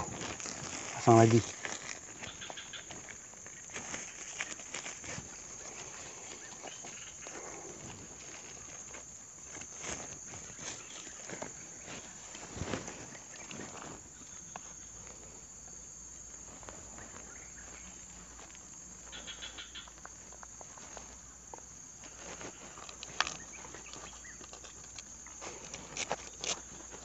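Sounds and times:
high insect drone: 0.0s - 27.0s
hands handling woven trap: 19.9s - 27.0s.

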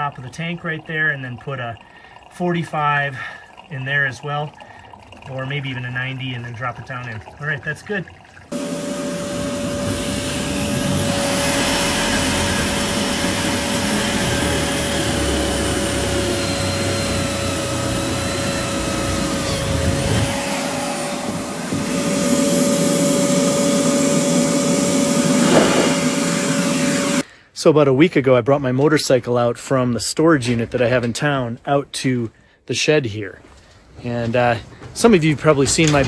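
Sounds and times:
machine whine: 8.5s - 27.2s.

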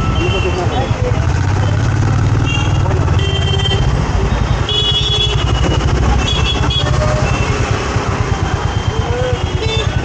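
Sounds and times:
vehicle engine rumbling: 0.0s - 10.0s
car horns: 2.4s - 7.8s, 8.6s - 10.0s.

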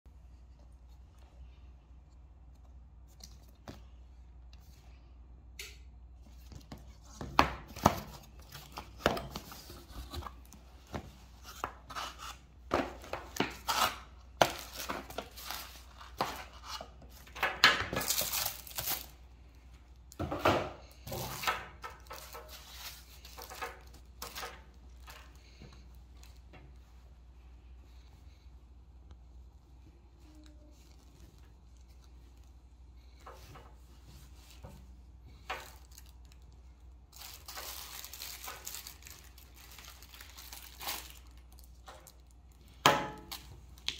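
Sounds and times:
plastic wrapping rustling: 6.2s - 20.2s, 20.8s - 27.3s, 30.0s - 43.9s.

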